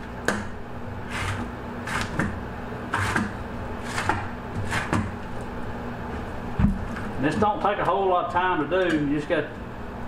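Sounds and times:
tool scraping fish skin: 1.0s - 5.2s.

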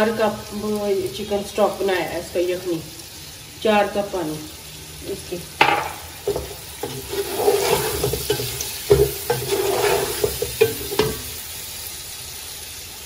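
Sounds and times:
food sizzling in oil: 0.0s - 13.0s
spatula scraping and knocking pot: 5.6s - 11.3s.

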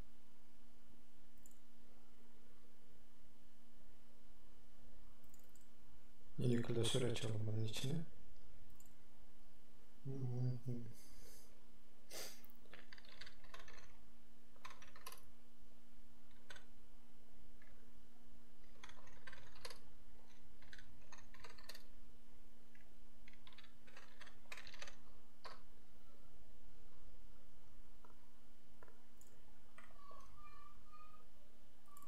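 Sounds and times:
faint steady hum: 0.0s - 32.0s
keyboard typing: 5.2s - 5.7s, 12.6s - 14.0s, 14.6s - 15.3s, 16.3s - 16.7s, 18.6s - 21.9s, 22.7s - 25.6s.

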